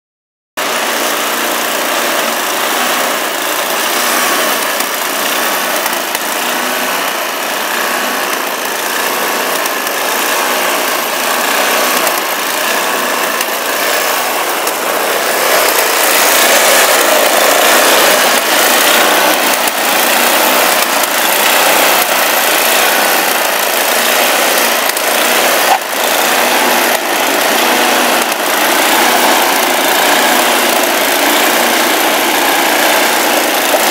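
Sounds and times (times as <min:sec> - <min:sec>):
snowblower running: 0:00.6 - 0:33.9.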